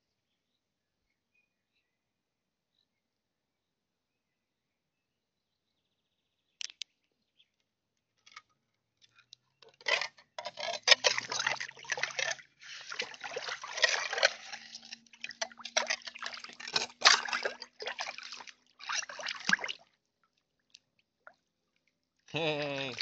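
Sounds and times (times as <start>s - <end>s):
water sloshing and splashing: 9.7s - 23.0s.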